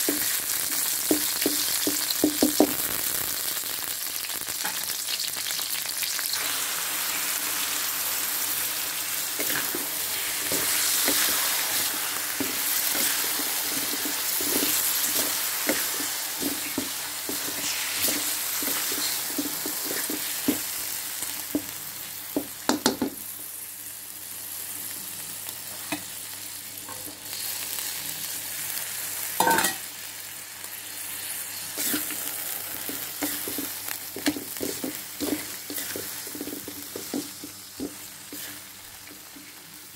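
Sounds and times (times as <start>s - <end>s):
chicken sizzling in hot oil: 0.0s - 39.9s
spatula scraping a wok: 9.3s - 20.7s, 31.1s - 39.6s.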